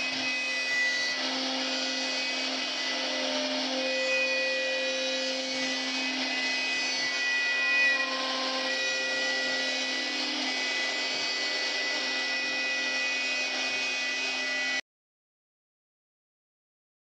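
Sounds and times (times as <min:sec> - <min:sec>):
hiss of wood cutting: 0:00.0 - 0:14.8
router spindle whine: 0:00.0 - 0:14.8.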